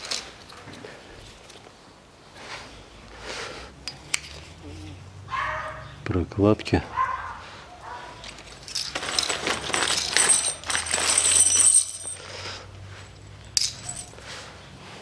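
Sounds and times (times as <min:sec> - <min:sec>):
metal bolts clinking on concrete: 0:08.2 - 0:14.2.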